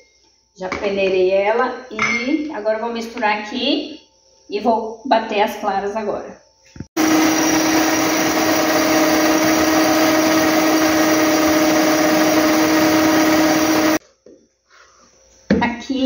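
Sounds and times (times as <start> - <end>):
stand mixer motor whining: 7.0 - 14.0.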